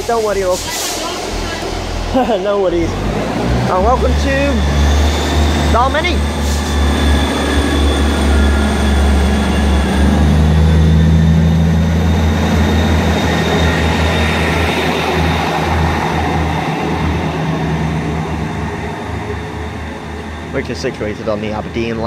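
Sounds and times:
diesel train engines drumming: 0:00.0 - 0:22.0.

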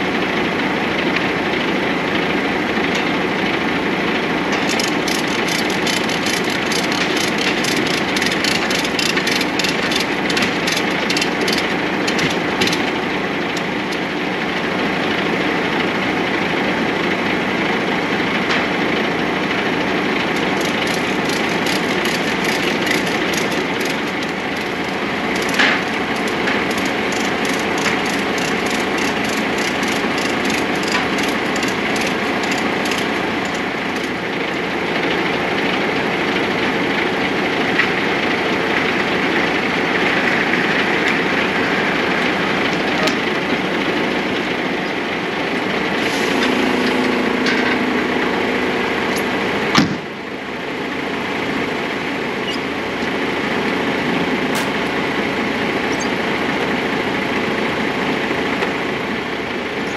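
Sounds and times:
truck cab running noise: 0:00.0 - 0:59.9
rapid even ticking: 0:04.6 - 0:14.0, 0:20.2 - 0:34.4.

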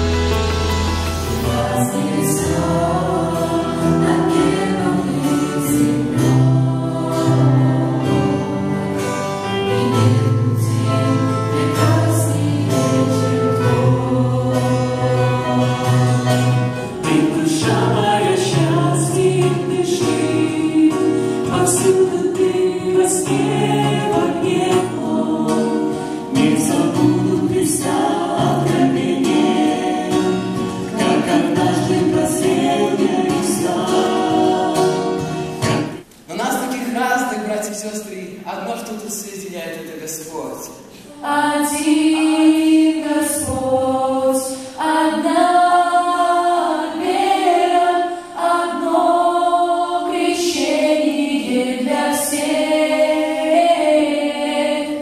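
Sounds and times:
group singing worship song: 0:00.0 - 0:36.1, 0:40.9 - 0:55.0
keyboard: 0:00.0 - 0:36.1
acoustic guitar: 0:00.0 - 0:55.0.

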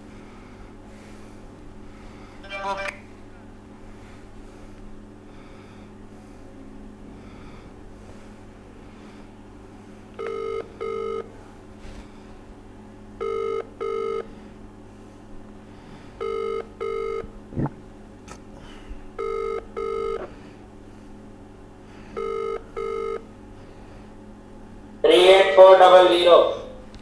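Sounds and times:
low electrical hum: 0:00.0 - 0:27.0
telephone ringback beeps: 0:10.2 - 0:11.3, 0:13.2 - 0:14.3, 0:16.2 - 0:17.2, 0:19.2 - 0:20.2, 0:22.2 - 0:23.2.

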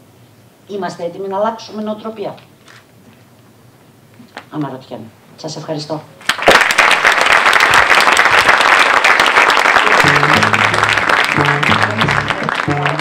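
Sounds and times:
audience applauding: 0:06.2 - 0:13.0
music with low string bass: 0:10.0 - 0:13.0.

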